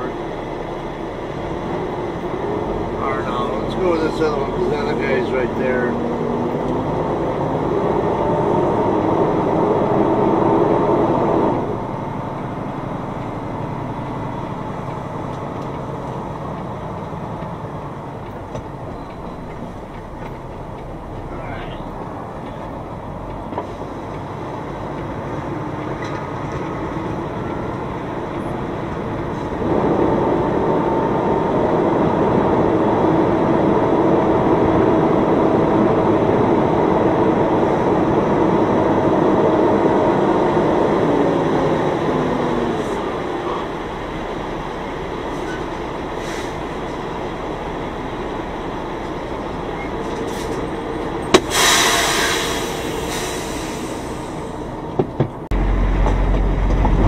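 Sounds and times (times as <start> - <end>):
diesel truck engine running: 0.0 - 57.0
air brake hiss: 46.2 - 46.7, 51.4 - 54.6.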